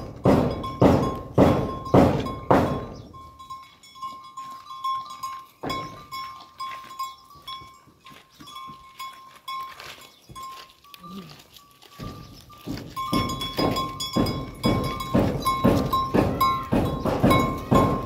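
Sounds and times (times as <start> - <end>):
heavy blows: 0.0 - 3.0
thin steady ringing tone: 0.6 - 18.0.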